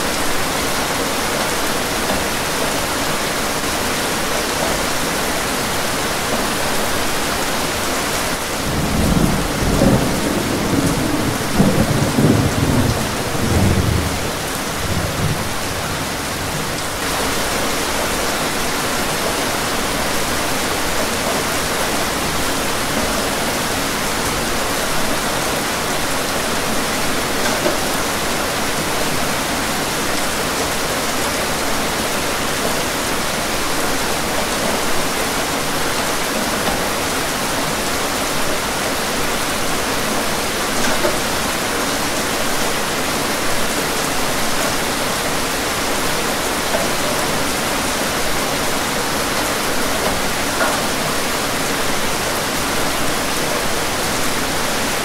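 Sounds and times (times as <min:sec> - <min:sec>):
steady rain hiss: 0:00.0 - 0:55.0
rolling thunder rumble: 0:08.5 - 0:17.0.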